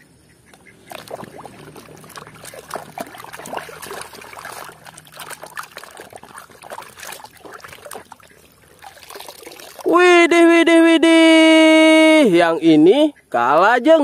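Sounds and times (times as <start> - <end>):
water splashing in a tub: 0.7 - 10.2.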